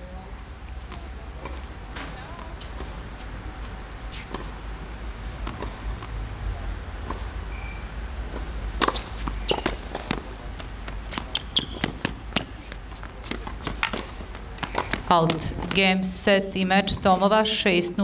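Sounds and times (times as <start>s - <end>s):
tennis serve: 0.9s - 6.2s, 6.8s - 15.8s
low steady rumble: 2.8s - 10.6s
ball bouncing: 6.8s - 12.5s
racket hitting ball: 6.8s - 15.7s
quick footsteps on court: 8.3s - 15.9s.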